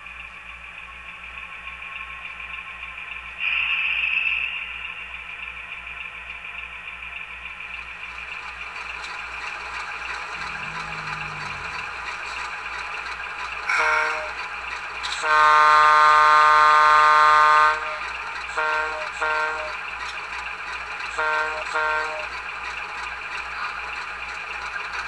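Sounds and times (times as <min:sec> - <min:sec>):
model locomotive engine idling: 0:00.0 - 0:25.0
air horn toots and blasts: 0:13.7 - 0:14.3, 0:15.2 - 0:19.7, 0:21.2 - 0:22.2.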